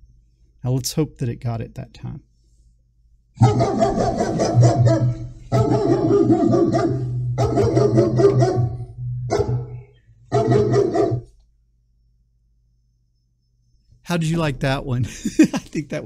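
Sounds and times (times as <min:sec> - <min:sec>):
recorded dog barking through speaker: 0:03.4 - 0:11.3.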